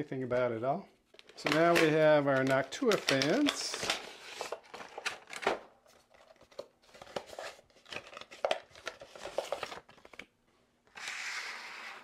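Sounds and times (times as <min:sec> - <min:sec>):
packaging rustling and crinkling: 0:01.1 - 0:10.3
packaging clicks: 0:01.2 - 0:10.3.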